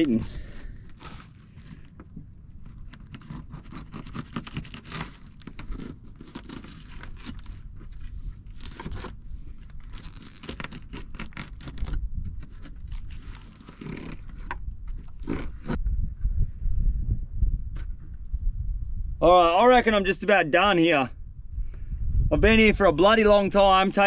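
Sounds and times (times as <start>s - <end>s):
knife scraping through fish: 0.4s - 1.9s, 2.6s - 15.8s.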